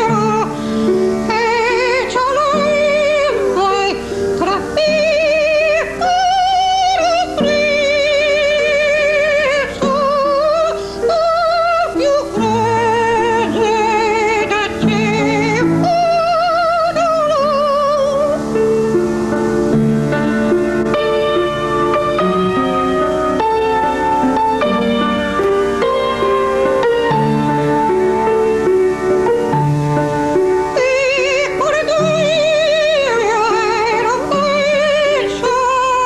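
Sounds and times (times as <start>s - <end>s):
instrumental accompaniment: 0.0s - 36.0s
soprano singing operatically: 0.0s - 36.0s.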